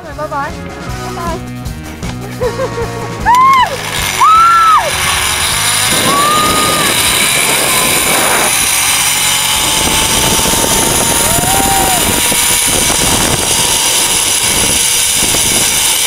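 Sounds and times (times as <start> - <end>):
pulleys whirring on steel cable: 3.2 - 16.0
wind buffeting microphone: 4.8 - 16.0.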